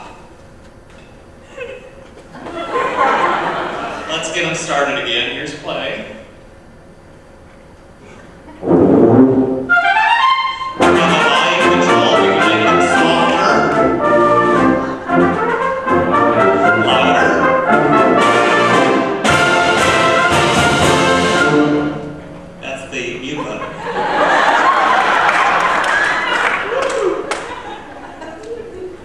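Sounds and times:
concert wind band playing: 0:08.6 - 0:23.2.

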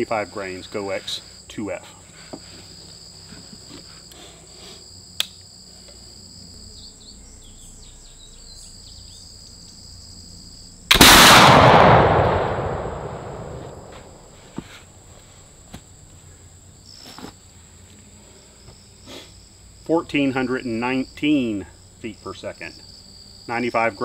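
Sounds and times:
sharp click: 0:05.2 - 0:05.4
flintlock gunshot boom: 0:10.9 - 0:14.4.

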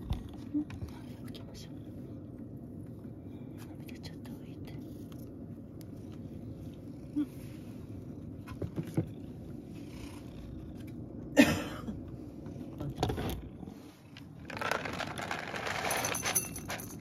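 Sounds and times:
cat purring: 0:00.0 - 0:11.4.

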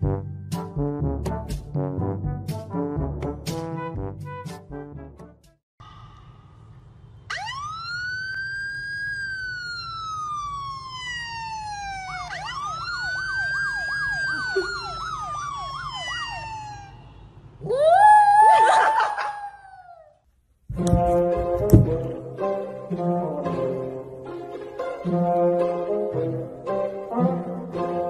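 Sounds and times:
siren from a phone: 0:07.3 - 0:17.2.

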